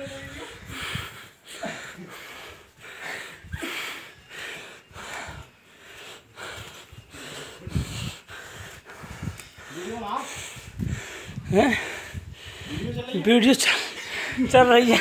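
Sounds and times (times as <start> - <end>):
person panting heavily: 0.0 - 15.0.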